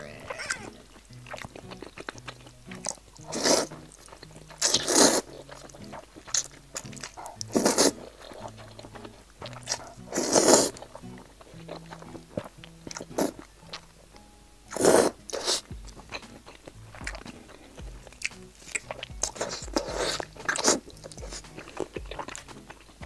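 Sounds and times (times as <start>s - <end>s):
wet chewing and smacking: 0.2s - 23.0s
loud slurping of noodles: 3.2s - 3.7s, 4.6s - 5.5s, 7.2s - 8.4s, 9.7s - 10.8s, 14.7s - 15.7s, 18.7s - 21.4s.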